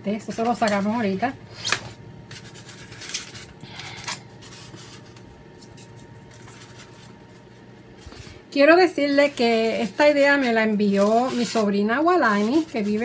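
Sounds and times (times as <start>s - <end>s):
foam scratching on countertop: 8.7s - 13.0s.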